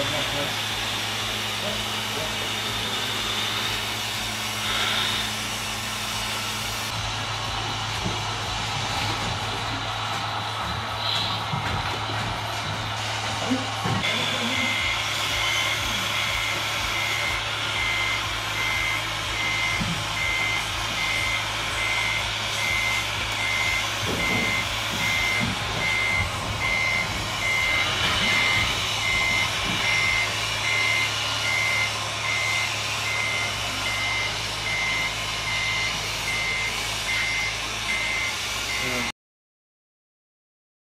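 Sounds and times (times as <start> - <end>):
reversing beeper: 13.8 - 39.1.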